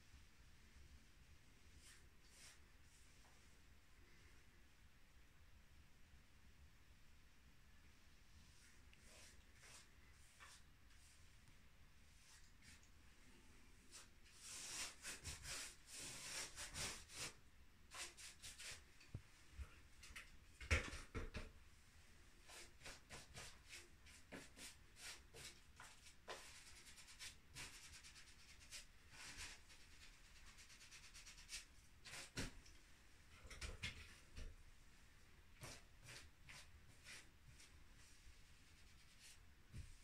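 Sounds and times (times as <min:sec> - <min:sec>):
paintbrush swishing on wall: 0:01.6 - 0:03.6, 0:08.4 - 0:20.2, 0:22.3 - 0:32.7, 0:33.3 - 0:40.0.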